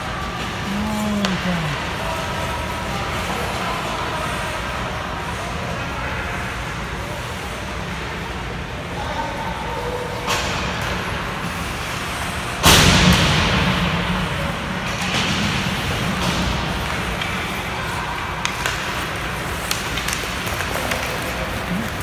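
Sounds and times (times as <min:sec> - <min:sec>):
faint voices: 0:00.0 - 0:10.3, 0:20.5 - 0:22.0.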